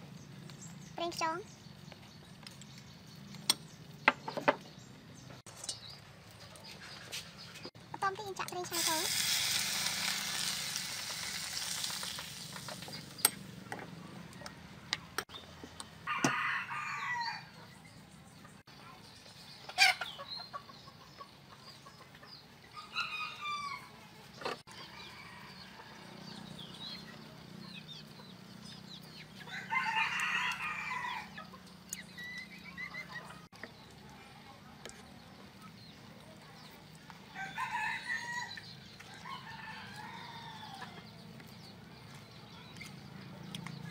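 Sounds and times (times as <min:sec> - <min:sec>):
hot liquid hissing: 0:08.6 - 0:13.3
rooster crowing: 0:16.0 - 0:17.6, 0:29.5 - 0:31.4.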